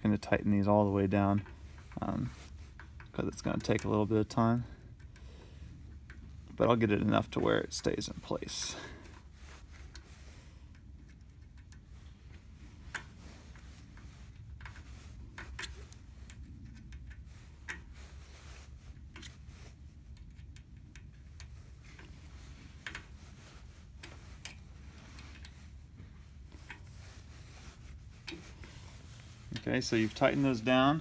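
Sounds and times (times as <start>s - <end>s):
low steady hum: 0.0s - 31.0s.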